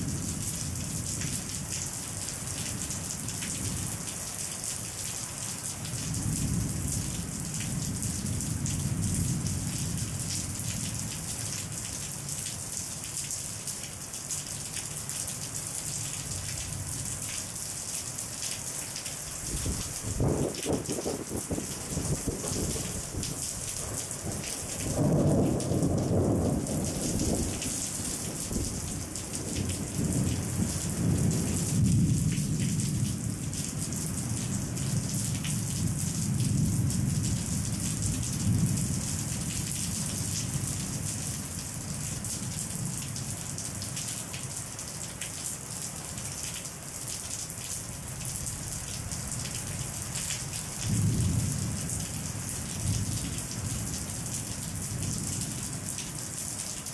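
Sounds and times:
steady rain: 0:00.0 - 0:56.9
thunder rumbling: 0:19.4 - 0:33.3.

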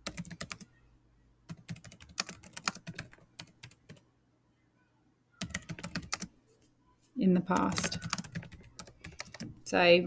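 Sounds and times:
computer keyboard typing: 0:00.0 - 0:00.7, 0:01.5 - 0:04.0, 0:05.4 - 0:06.3, 0:07.5 - 0:09.6.

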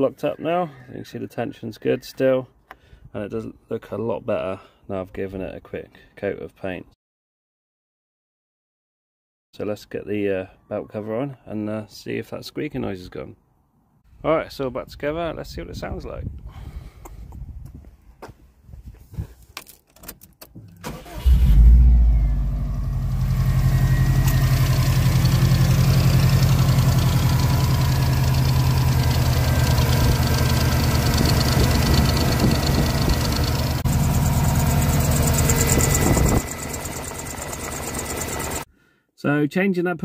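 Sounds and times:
car engine starting and idling: 0:20.6 - 0:38.7.

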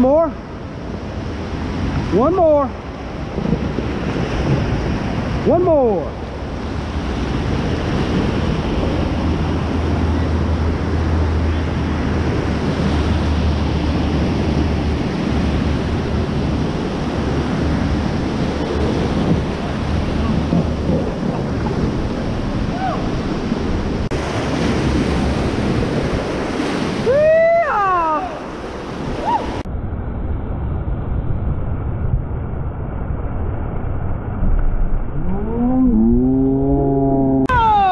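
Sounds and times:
whitewater rapids roaring: 0:00.0 - 0:29.7
wind buffeting microphone: 0:00.0 - 0:37.9.

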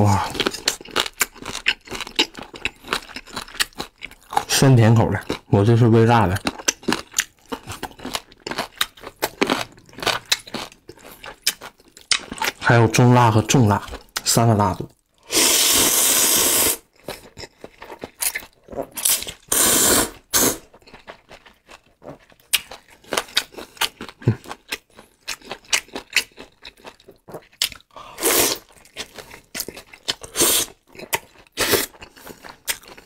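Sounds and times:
chewing with wet mouth clicks: 0:00.3 - 0:04.5, 0:06.3 - 0:12.6, 0:16.8 - 0:19.4, 0:20.6 - 0:28.0, 0:28.6 - 0:33.0
slurping noodles: 0:15.2 - 0:16.9, 0:19.0 - 0:20.7, 0:28.1 - 0:28.7, 0:30.2 - 0:30.8, 0:31.5 - 0:32.0.

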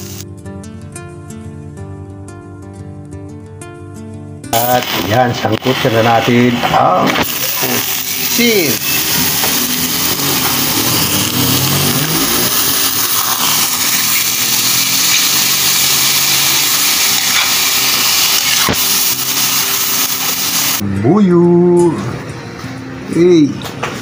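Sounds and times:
squid sizzling in hot oil: 0:00.0 - 0:00.2, 0:07.2 - 0:20.8.

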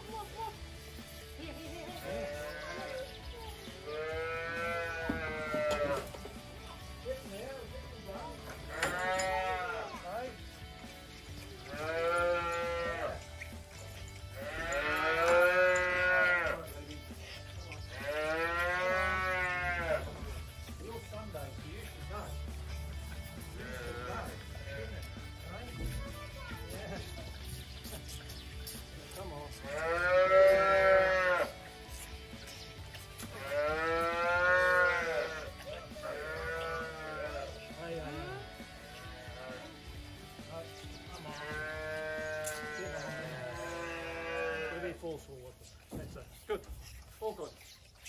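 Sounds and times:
calves mooing: 0:03.7 - 0:06.4, 0:08.5 - 0:10.4, 0:11.6 - 0:17.0, 0:17.7 - 0:20.8, 0:23.0 - 0:25.4, 0:29.5 - 0:31.6, 0:33.0 - 0:39.9, 0:41.2 - 0:45.0
calf bawling: 0:17.8 - 0:20.4, 0:41.3 - 0:45.0.

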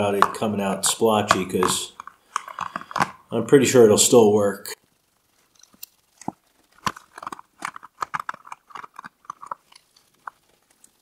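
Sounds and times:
wet clicks and squelches: 0:05.6 - 0:11.0.

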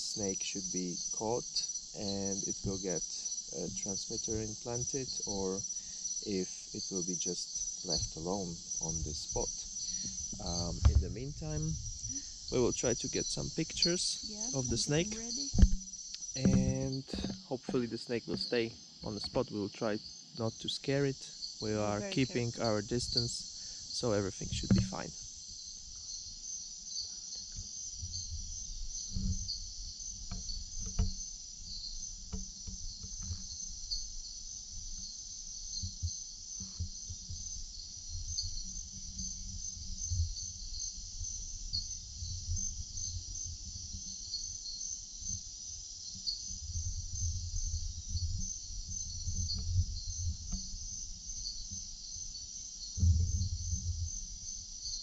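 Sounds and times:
high-pitched insect chorus: 0:00.0 - 0:55.0
low rumble: 0:10.4 - 0:13.7.

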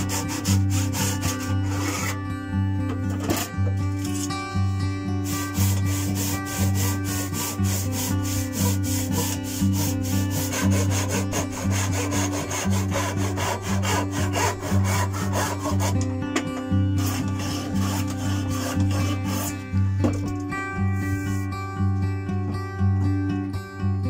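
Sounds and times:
handsaw cutting wood: 0:00.0 - 0:02.2, 0:05.2 - 0:16.1, 0:17.0 - 0:19.7
soft acoustic music: 0:00.0 - 0:24.0.

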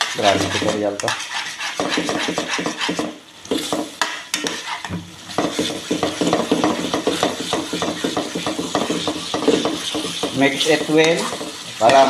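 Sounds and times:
metal utensil scraping a wok: 0:00.0 - 0:12.0
sauce simmering and sizzling: 0:00.0 - 0:12.0.

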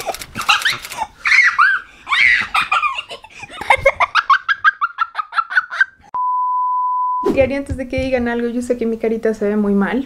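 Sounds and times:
person laughing being tickled: 0:02.3 - 0:06.0.

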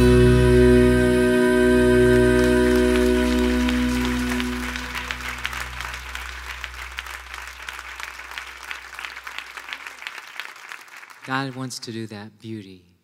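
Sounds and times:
worship song held chord: 0:00.0 - 0:05.9
audience applause: 0:02.0 - 0:11.7.

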